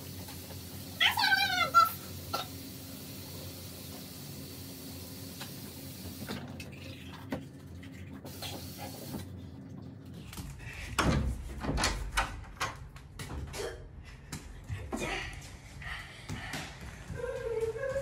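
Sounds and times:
water running into a sink: 0.0s - 6.8s, 8.3s - 9.2s.

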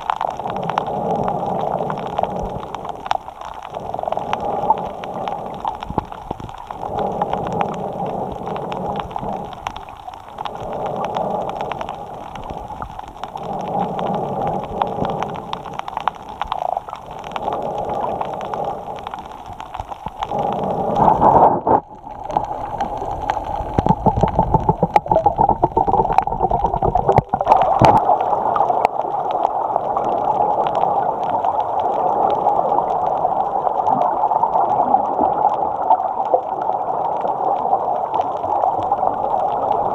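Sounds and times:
rush of air and water gurgling: 0.0s - 39.9s
breathing through a snorkel: 0.4s - 3.0s, 3.7s - 5.8s, 6.8s - 9.6s, 10.4s - 12.6s, 13.2s - 15.8s, 17.2s - 19.3s, 20.1s - 21.7s.

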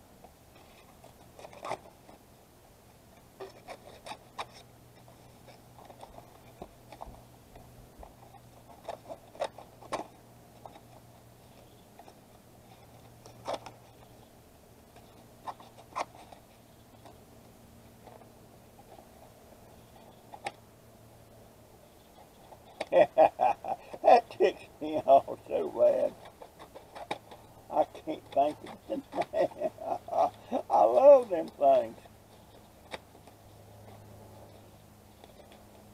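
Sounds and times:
faint low hum: 0.0s - 35.9s
cardboard packaging clicks and rustles: 0.5s - 2.2s, 8.0s - 14.1s, 25.5s - 35.9s.

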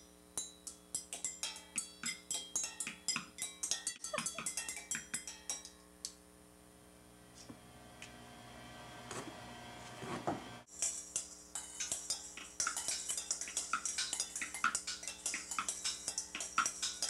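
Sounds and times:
sticks drumming on metal bowls: 0.4s - 5.7s, 10.7s - 17.0s.

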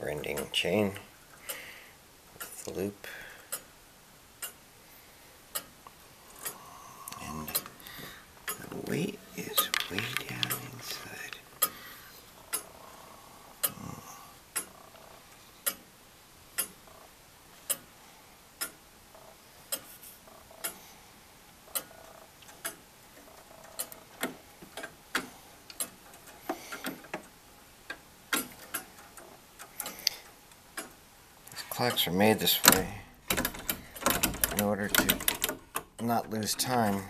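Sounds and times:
clock ticking: 0.0s - 1.7s, 4.4s - 4.6s, 5.5s - 12.8s, 13.6s - 15.9s, 16.5s - 17.9s, 18.6s - 20.8s, 21.6s - 37.0s
light irregular clicks: 4.4s - 4.6s, 5.5s - 12.8s, 13.6s - 15.9s, 16.6s - 17.0s, 18.6s - 20.8s, 21.7s - 37.0s.

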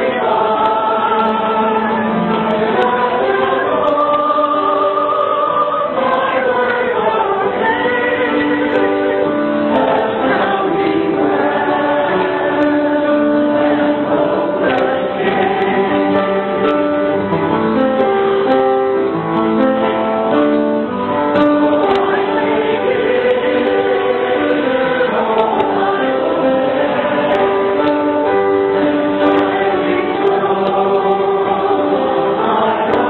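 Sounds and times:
church choir singing: 0.0s - 33.0s
piano accompaniment: 0.0s - 33.0s.

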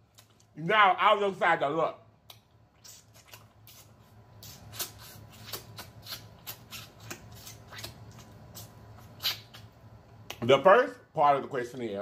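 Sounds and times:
man licking and sucking fingers: 0.0s - 0.6s, 2.2s - 10.4s.

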